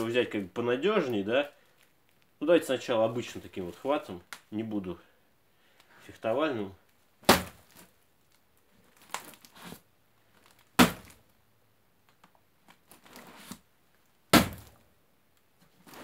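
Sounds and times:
knife stabbing into cardboard: 7.2s - 7.9s, 10.8s - 11.2s, 14.3s - 14.8s
cardboard crackling and scraping: 8.6s - 11.2s, 12.6s - 13.7s, 15.6s - 16.0s.

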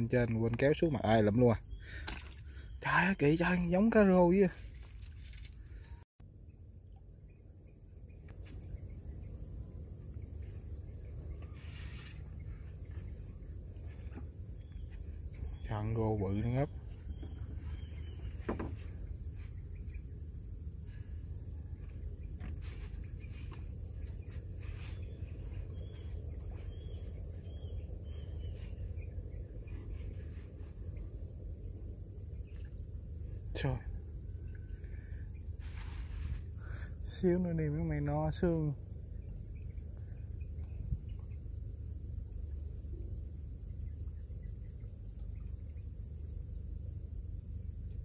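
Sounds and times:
high insect drone: 0.0s - 48.0s
soft hiss: 35.0s - 36.9s.

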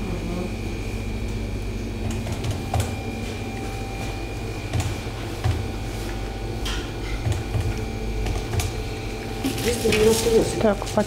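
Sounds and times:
steady low hum: 0.0s - 11.0s
goods and packaging being handled: 8.4s - 11.0s.

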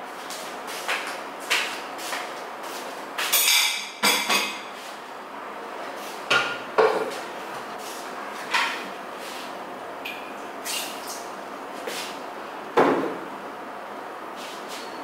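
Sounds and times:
dishes clinking on counter: 3.3s - 4.6s.

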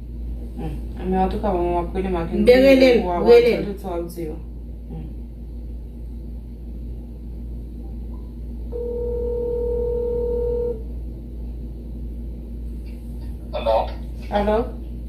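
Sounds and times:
low steady hum: 0.0s - 15.0s
phone ringback tone: 8.7s - 10.8s.

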